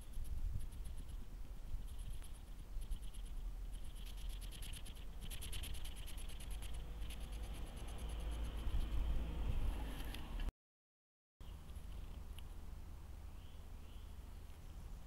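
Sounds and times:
hedgehog scratching and rubbing: 0.0 - 9.2
low rumble: 6.4 - 10.5.

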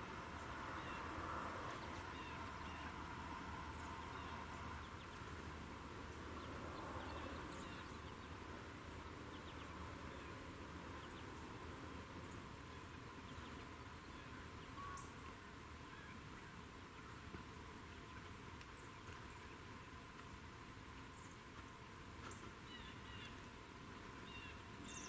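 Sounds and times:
faint hiss: 0.0 - 25.0
small birds chirping: 0.0 - 25.0.

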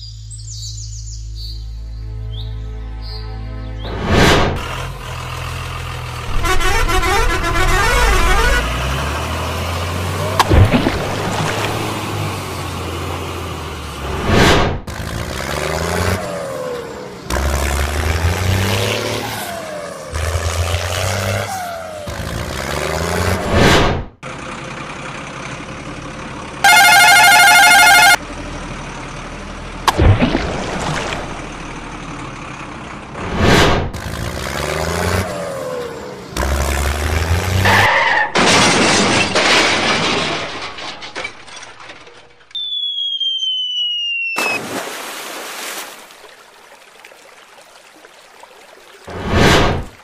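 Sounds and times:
crash and whoosh effects: 3.9 - 4.7, 14.0 - 14.9, 23.4 - 24.1, 33.2 - 34.0, 49.1 - 50.0
loud blaring horn: 6.3 - 9.1, 26.6 - 28.2
water sound: 29.9 - 31.9, 44.4 - 50.0
whistle sliding down in pitch: 42.5 - 44.6.

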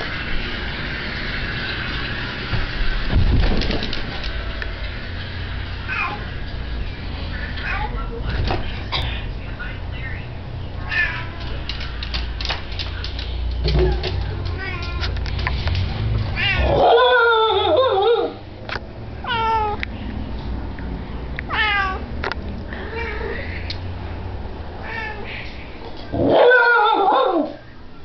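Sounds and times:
dog yodelling: 16.5 - 18.4, 26.1 - 27.7.

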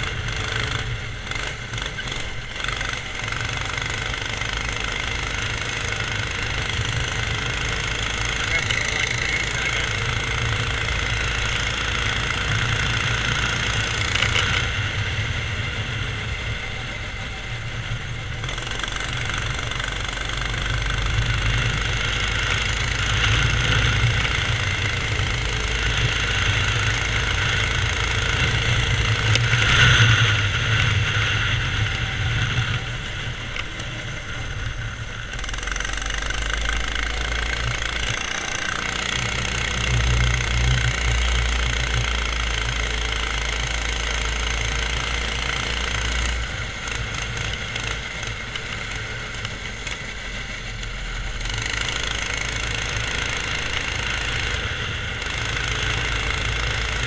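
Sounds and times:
go-kart engine running: 0.0 - 57.0.

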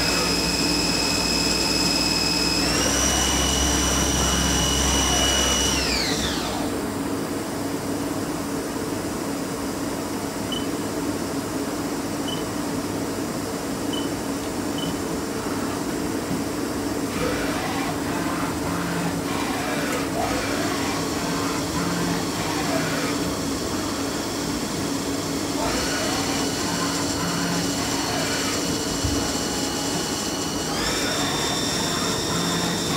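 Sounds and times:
lathe spindle whine: 0.0 - 6.9, 17.0 - 32.9
machine hum: 0.0 - 7.7, 10.5 - 32.9.

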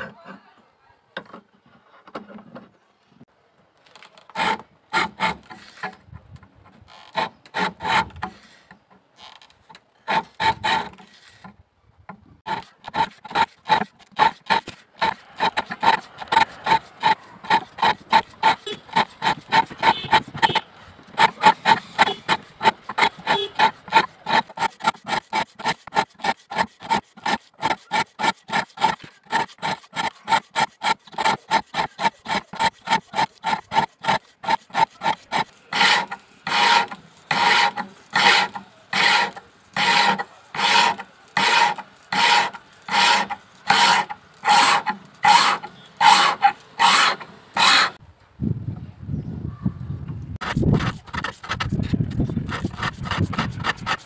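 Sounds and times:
hand file stroking steel blade: 7.1 - 8.6, 10.1 - 11.5, 12.5 - 48.0, 50.4 - 54.0.

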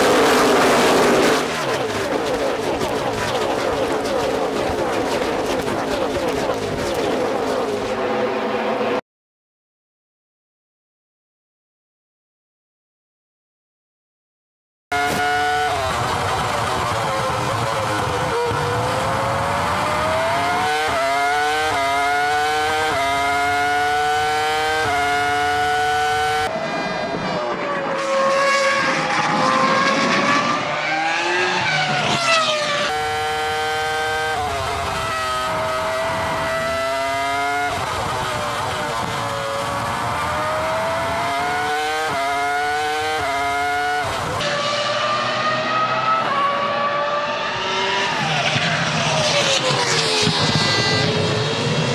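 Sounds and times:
gear upshifts: 0.0 - 8.2
racing car engine revving: 14.9 - 51.9.

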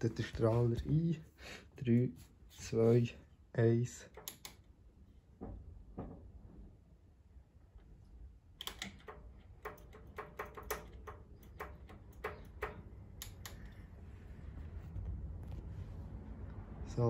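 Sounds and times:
low hum: 12.1 - 17.0.

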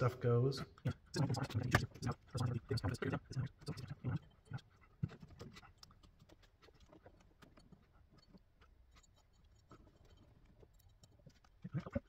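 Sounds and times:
faint clicks of small metal parts: 5.0 - 12.0.

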